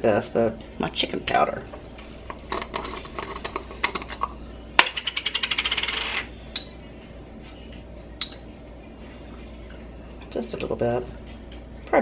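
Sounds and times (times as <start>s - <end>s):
spoon scraping against jar: 2.3s - 4.3s.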